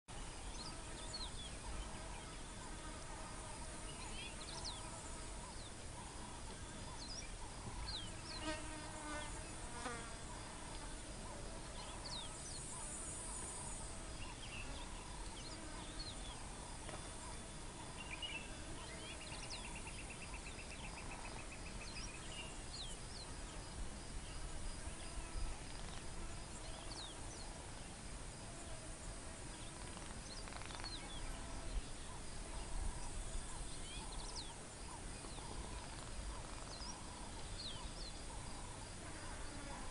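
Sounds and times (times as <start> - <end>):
insects buzzing: 0.1 - 39.9
bird chirps: 29.6 - 38.8.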